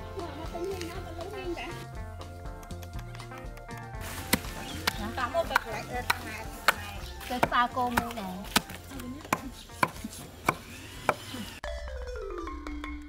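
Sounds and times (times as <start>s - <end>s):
marimba-like background music: 0.0s - 13.0s
hatchet chopping meat and bone: 4.2s - 11.5s.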